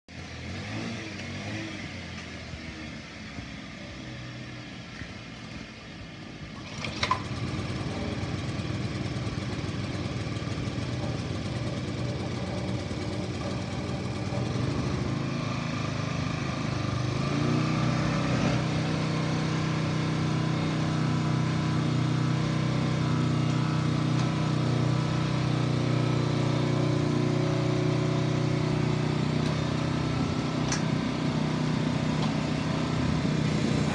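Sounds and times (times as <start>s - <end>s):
tiller engine running: 6.5s - 33.9s.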